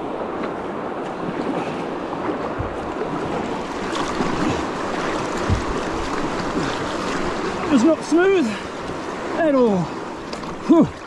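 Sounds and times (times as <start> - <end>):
paddle strokes in water: 0.0 - 11.0
river water rushing and splashing: 0.0 - 11.0
wind thumps on microphone: 2.3 - 3.3, 5.1 - 6.2.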